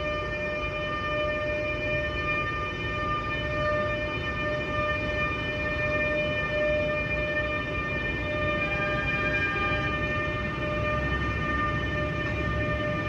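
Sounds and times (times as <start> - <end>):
high-pitched whine: 5.8 - 13.0.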